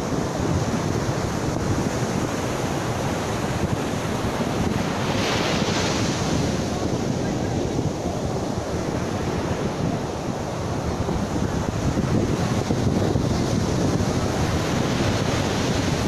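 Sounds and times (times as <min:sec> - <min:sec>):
ocean surf breaking on beach: 0:00.0 - 0:16.0
wind buffeting microphone: 0:00.0 - 0:16.0.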